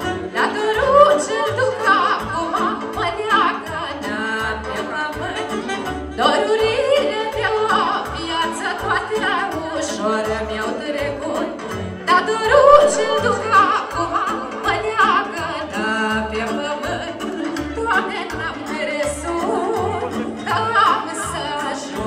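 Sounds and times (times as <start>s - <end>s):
keyboard: 0.0s - 22.0s
woman singing: 0.0s - 22.0s
saxophones: 12.1s - 14.5s.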